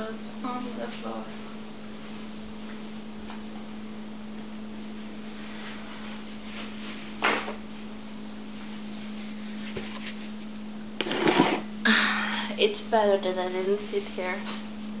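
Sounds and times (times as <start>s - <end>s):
low electrical hum: 0.0s - 15.0s.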